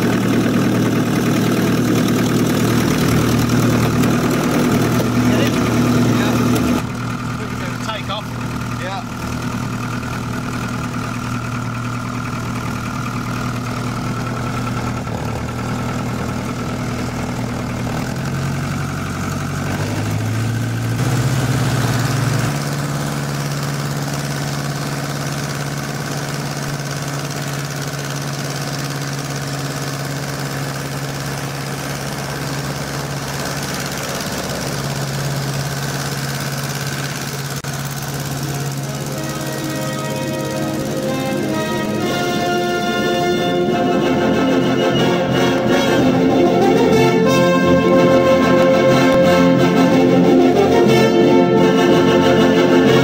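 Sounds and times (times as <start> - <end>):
light aircraft piston engine: 0.0 - 53.0.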